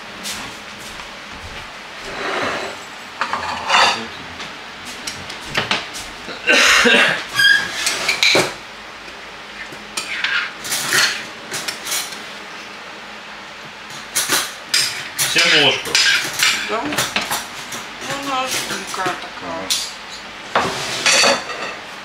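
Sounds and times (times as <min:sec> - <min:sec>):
spoon scraping glass dish: 0:02.1 - 0:04.0.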